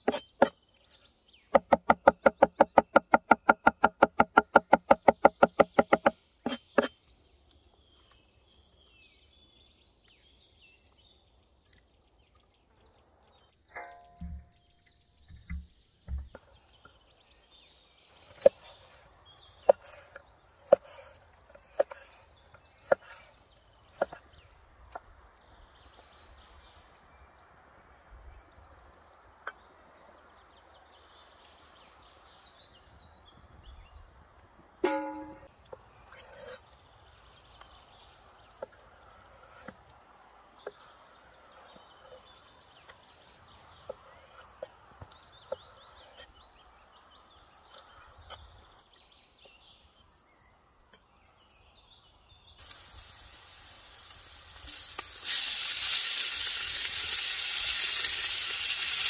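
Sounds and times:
birds chirping faintly: 0.0s - 59.0s
cleaver chopping on wooden board: 1.6s - 7.0s.

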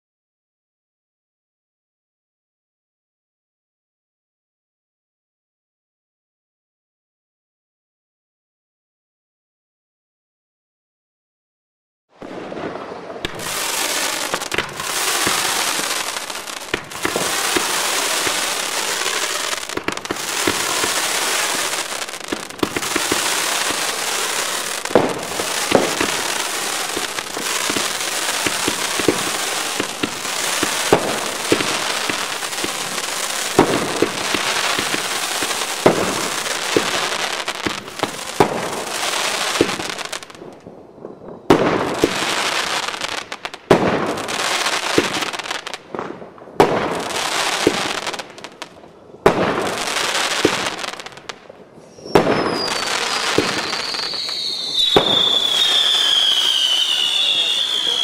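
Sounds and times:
fireworks launching with hissing rush: 12.2s - 58.0s
sharp firework cracks: 12.2s - 58.0s.

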